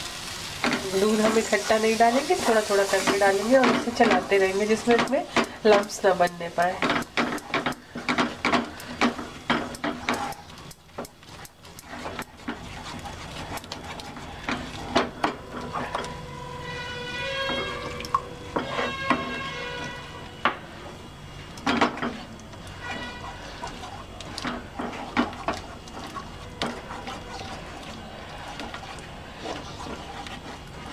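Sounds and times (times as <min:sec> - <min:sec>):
wooden spatula scraping a pan: 0:00.0 - 0:30.9.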